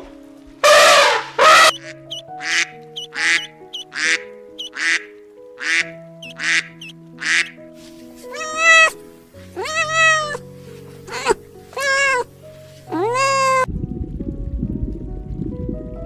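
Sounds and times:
background music sustained notes: 0.0s - 16.0s
elephant trumpeting: 0.6s - 5.0s
waterfowl honking: 0.6s - 7.6s, 8.3s - 9.0s, 9.6s - 10.4s
faint high peeps: 1.7s - 4.9s, 6.2s - 7.5s.

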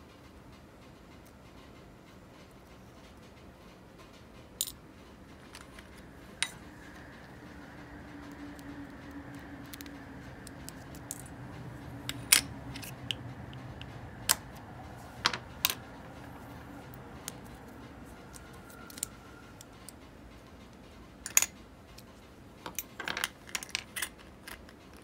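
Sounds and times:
faint steady hum: 0.9s - 25.0s
small metal parts clicking: 8.2s - 11.4s, 18.4s - 20.0s.

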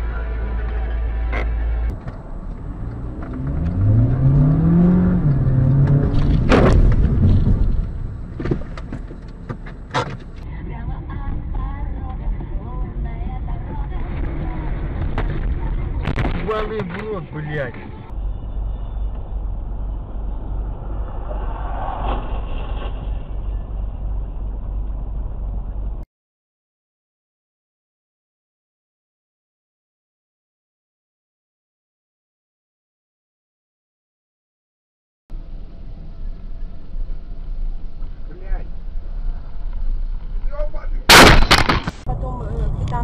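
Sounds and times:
vehicle road and engine rumble: 0.0s - 26.1s, 35.3s - 43.0s
car engine revving: 0.8s - 10.4s
loud sharp bang: 41.1s - 42.1s.

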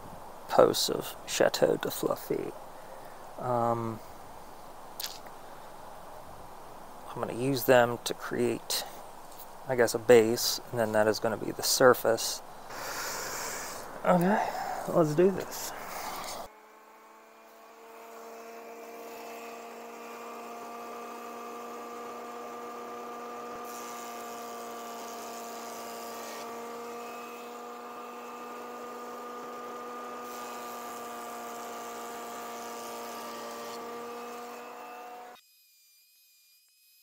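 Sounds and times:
jointer motor whining: 12.7s - 35.4s
wooden boards fed through cutter: 12.7s - 37.0s.

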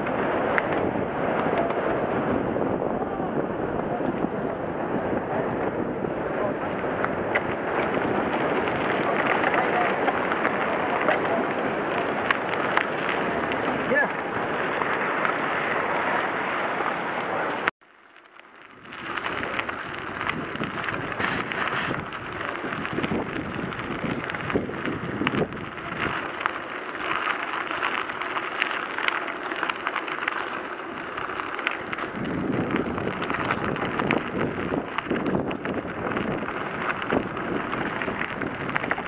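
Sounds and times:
wind buffeting microphone: 0.0s - 17.7s, 18.6s - 39.0s
bike tyres on gravel: 0.0s - 39.0s
small clicks and rattles: 6.7s - 14.0s, 18.2s - 39.0s.

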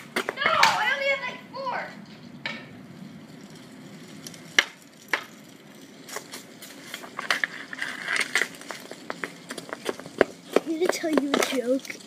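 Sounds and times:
hockey stick hitting ball: 0.0s - 0.9s.

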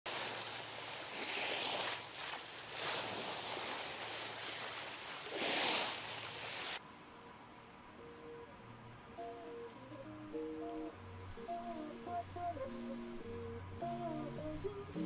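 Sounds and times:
sea water rushing along a hull: 0.1s - 6.8s.

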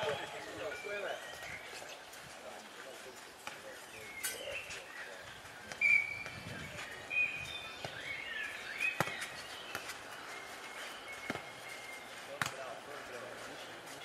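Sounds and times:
birds singing: 0.0s - 14.0s
ball kicked and bouncing: 8.9s - 10.0s, 11.2s - 11.5s, 12.3s - 12.7s.

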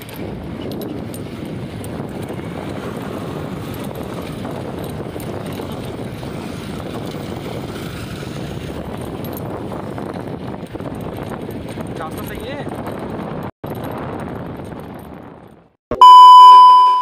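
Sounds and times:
motorcycle engine and road noise: 0.0s - 15.8s.

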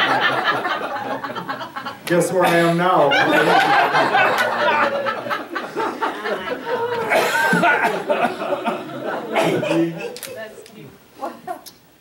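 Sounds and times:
audience laughing: 0.0s - 10.5s
speaker laughing: 3.0s - 10.2s.

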